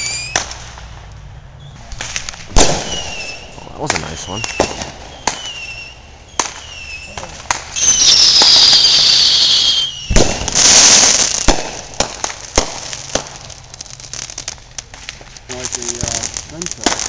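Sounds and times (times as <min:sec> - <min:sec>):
firework whistle falling in pitch: 0:00.0 - 0:00.5, 0:07.8 - 0:10.8
firecracker pops: 0:00.0 - 0:01.2, 0:01.8 - 0:13.7, 0:14.3 - 0:17.0
fireworks bangs: 0:00.0 - 0:17.0
hissing firework burst: 0:01.8 - 0:17.0.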